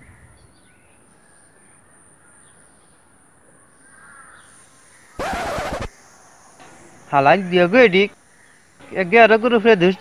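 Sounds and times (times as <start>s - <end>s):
faint outdoor background: 0.0s - 10.0s
harsh caw-like bird call: 3.8s - 8.8s.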